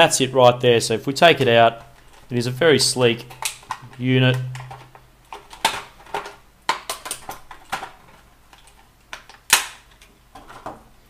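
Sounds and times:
plastic clicks and clacks: 0:03.2 - 0:10.8.

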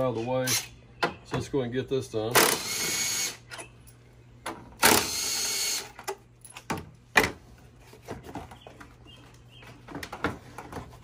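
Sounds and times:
power tool whining: 0:04.8 - 0:06.0.

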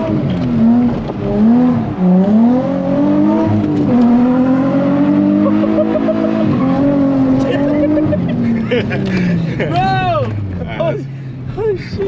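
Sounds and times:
car engine revving: 0:00.0 - 0:12.0.

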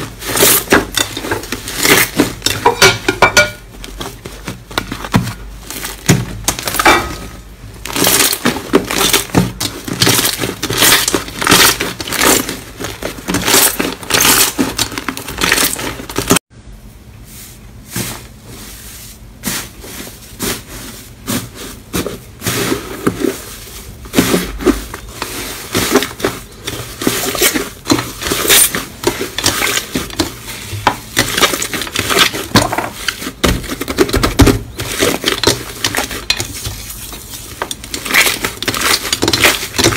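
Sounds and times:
slime crackling and popping: 0:07.8 - 0:16.4, 0:31.1 - 0:39.9.

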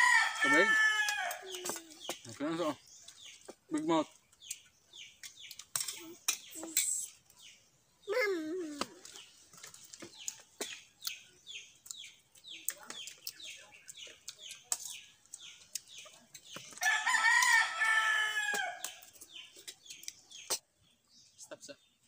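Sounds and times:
rooster crowing: 0:00.0 - 0:01.4, 0:16.8 - 0:18.8.

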